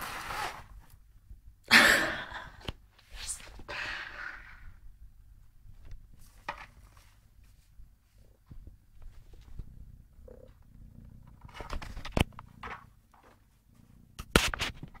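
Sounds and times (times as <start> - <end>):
rustling: 5.6 - 15.0
kitten purring: 8.1 - 15.0.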